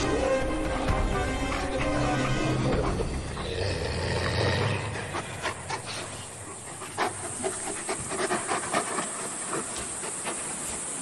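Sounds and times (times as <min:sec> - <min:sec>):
wolves snarling and panting: 0:00.0 - 0:11.0
wolves yelping and snapping: 0:05.2 - 0:11.0.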